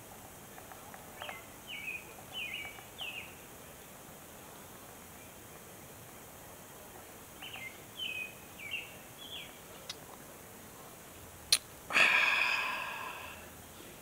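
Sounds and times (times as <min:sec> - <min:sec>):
small bird chirping: 0:01.1 - 0:03.4, 0:07.3 - 0:10.0.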